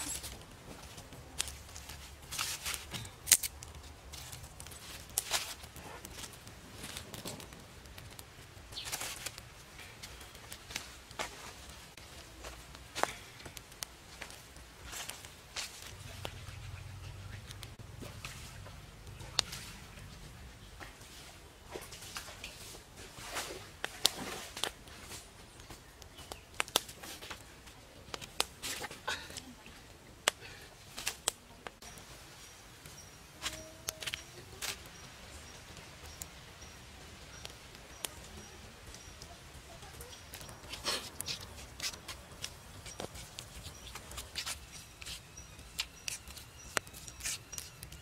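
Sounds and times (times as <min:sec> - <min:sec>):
campfire popping: 0:00.0 - 0:48.0
leaves and twigs rustling: 0:00.0 - 0:48.0.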